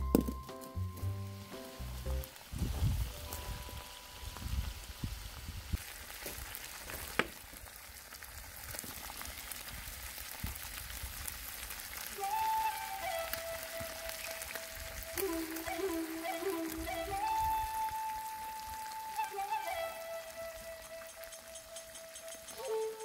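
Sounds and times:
meat sizzling in oil in a wok: 0.7 - 17.0.

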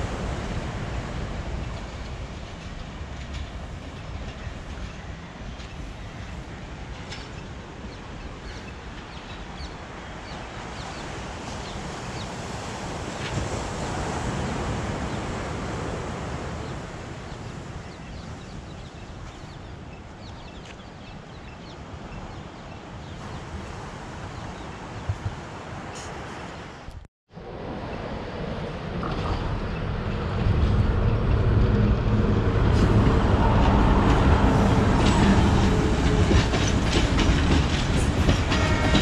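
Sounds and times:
waves washing onto beach: 0.0 - 39.0
wind on microphone: 10.3 - 39.0.

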